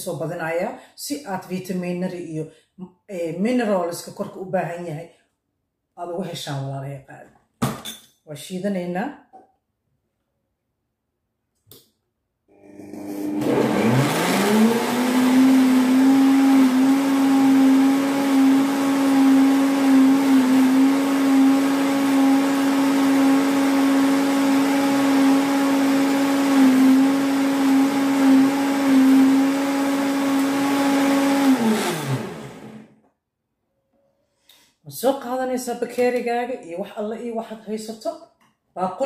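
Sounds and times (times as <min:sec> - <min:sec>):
blender motor humming: 0:12.5 - 0:32.9.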